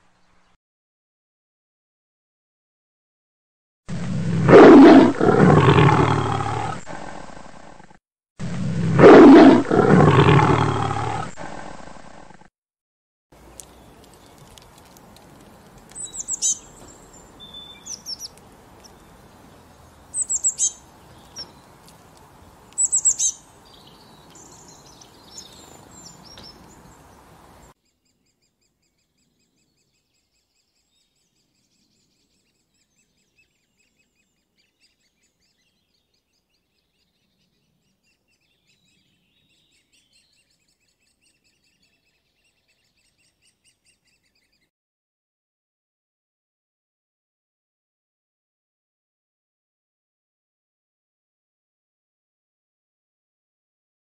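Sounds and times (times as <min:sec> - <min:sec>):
small birds chirping: 0:13.4 - 0:44.7.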